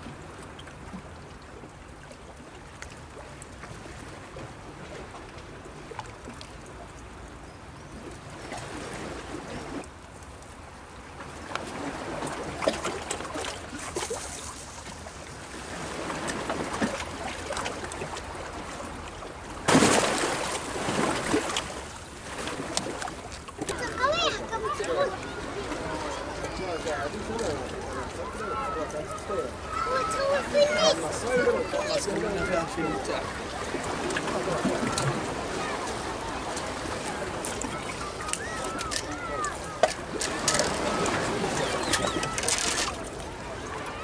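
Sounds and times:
sea waves washing against rocks: 0:11.4 - 0:44.0.

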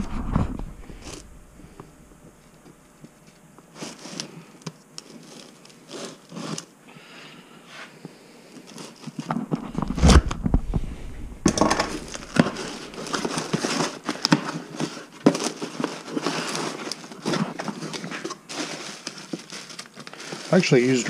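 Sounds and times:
packing paper crinkling: 0:00.0 - 0:02.6, 0:03.2 - 0:06.7, 0:08.6 - 0:21.0
heavy thump: 0:09.6 - 0:13.3.

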